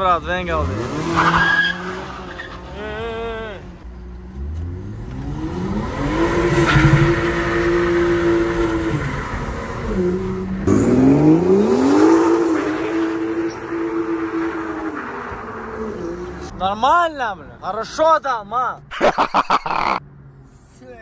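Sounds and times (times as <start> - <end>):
car engine accelerating hard: 3.7 - 16.5.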